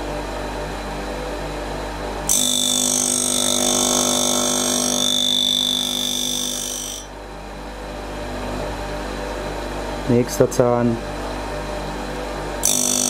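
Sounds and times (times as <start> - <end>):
sharpener motor humming: 2.2 - 7.2, 12.6 - 13.0
grinding wheel screeching on blade: 2.3 - 7.1, 12.6 - 13.0.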